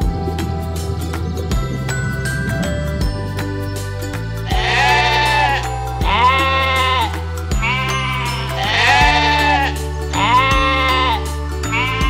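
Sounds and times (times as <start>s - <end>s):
background music with steady beat: 0.0s - 12.0s
sheep bleating: 4.4s - 12.0s.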